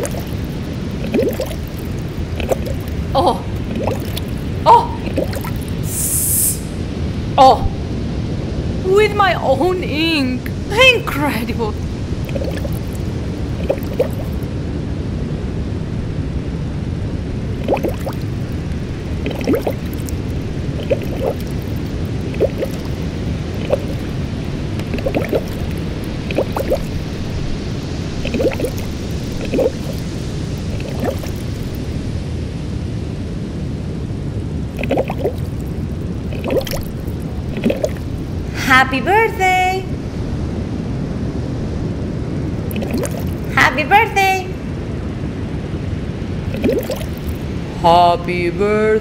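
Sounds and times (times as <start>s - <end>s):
water drips and bubbling: 0.0s - 6.1s, 11.7s - 14.5s, 17.5s - 32.0s, 34.7s - 38.6s, 42.5s - 43.6s, 46.4s - 47.6s
low water rush: 0.0s - 43.6s, 44.5s - 48.2s.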